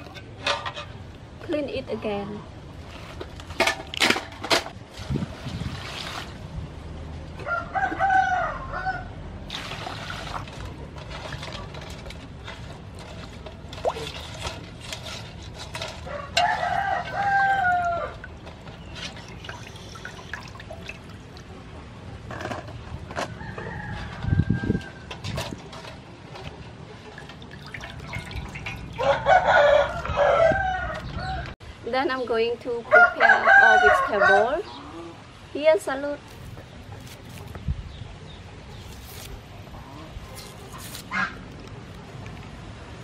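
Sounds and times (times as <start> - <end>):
water splashing in a metal basin: 3.6 - 6.5, 9.4 - 21.7, 27.0 - 29.3
rooster crowing: 7.4 - 9.1, 16.1 - 18.2, 29.0 - 31.5, 32.9 - 34.6.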